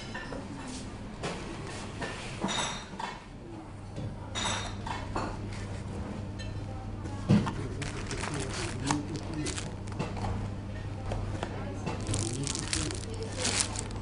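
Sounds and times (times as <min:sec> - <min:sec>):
clatters of meal handled on table: 0:07.3 - 0:10.4, 0:11.8 - 0:14.0.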